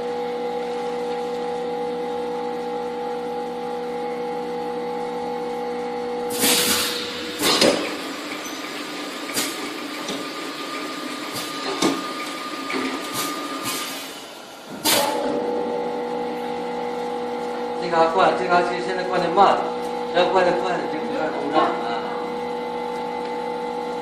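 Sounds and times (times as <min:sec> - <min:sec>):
conveyor running: 0:00.0 - 0:24.0
filling machine humming: 0:00.0 - 0:24.0
pneumatic air hisses: 0:06.3 - 0:07.8.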